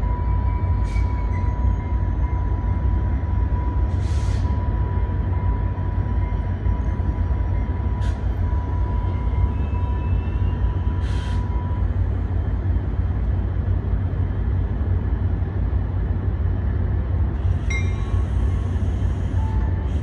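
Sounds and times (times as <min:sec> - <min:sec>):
diesel locomotive rumble: 0:00.0 - 0:20.0
steady high-pitched tone: 0:17.7 - 0:18.6.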